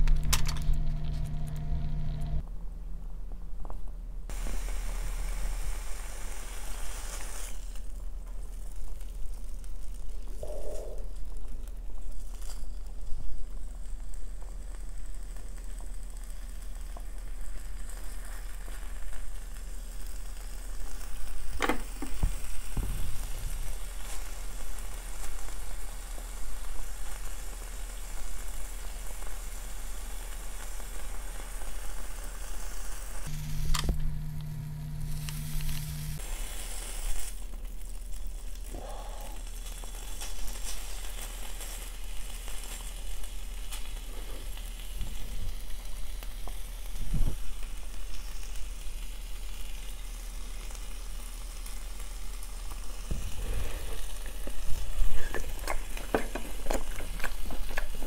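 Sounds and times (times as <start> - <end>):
brief low hum: 0.0 - 2.6, 33.3 - 36.2
steak sizzling on grill pan: 4.3 - 10.1, 12.0 - 38.8, 39.4 - 58.0.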